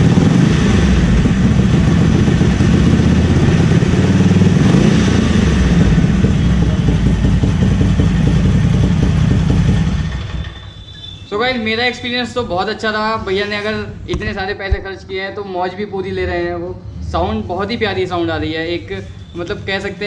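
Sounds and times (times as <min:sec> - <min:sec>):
motorcycle engine running: 0:00.0 - 0:10.4.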